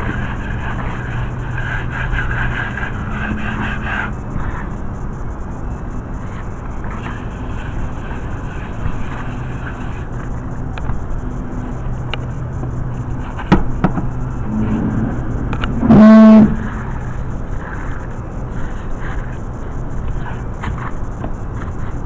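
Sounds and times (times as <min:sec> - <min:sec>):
city traffic hum: 0:00.0 - 0:22.0
sharp knocks: 0:13.5 - 0:14.9
vehicle horn blast: 0:14.5 - 0:16.8.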